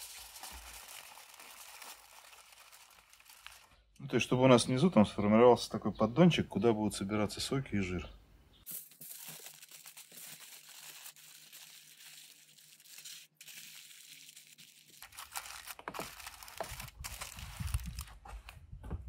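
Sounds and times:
aluminium foil crinkling: 0.0s - 3.8s, 8.6s - 18.2s.

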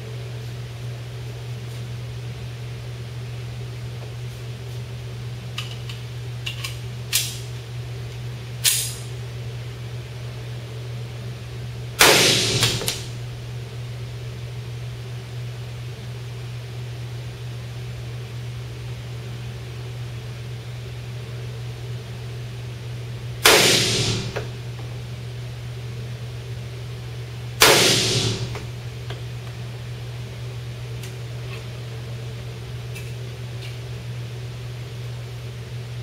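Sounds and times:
fan humming: 0.0s - 36.0s
pistol shots indoors: 8.6s - 9.1s, 12.0s - 13.3s, 23.4s - 24.6s, 27.6s - 28.8s.

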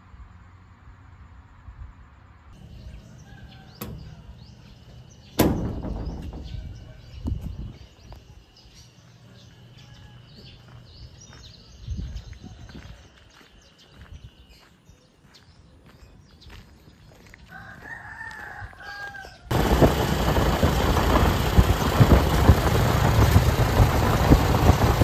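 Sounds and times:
low rumble: 2.6s - 8.1s, 19.5s - 25.0s
birds chirping: 2.6s - 25.0s
sharp knocks: 5.4s - 7.4s.

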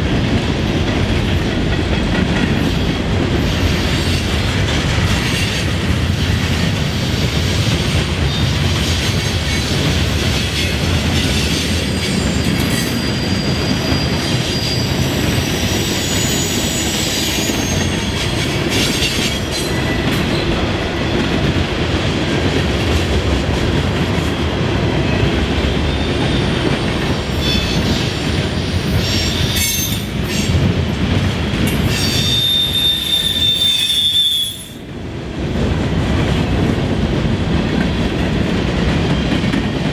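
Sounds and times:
high wheel squeals: 11.9s - 18.2s, 31.9s - 34.6s.

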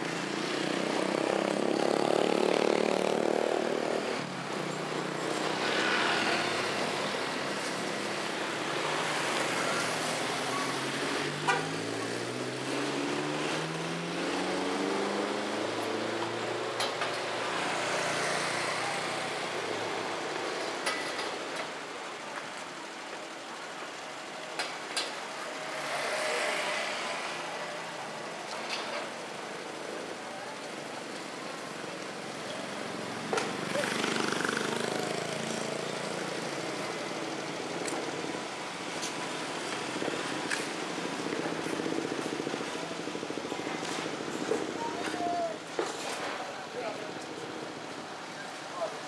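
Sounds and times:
motor scooter passing: 0.0s - 20.2s, 25.6s - 28.2s, 32.0s - 44.8s
engine running nearby: 0.0s - 49.0s
street traffic: 0.0s - 49.0s.

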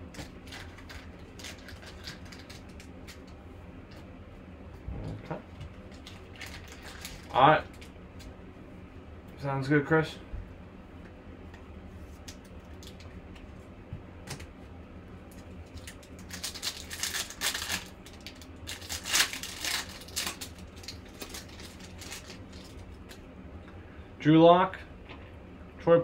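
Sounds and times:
foil wrapper tearing and crackling: 0.1s - 3.2s, 5.9s - 7.8s, 15.6s - 23.1s.

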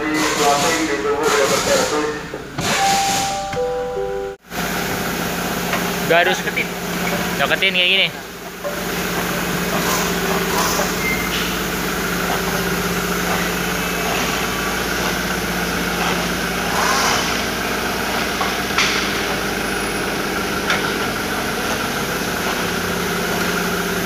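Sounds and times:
car engine running: 4.5s - 24.0s.

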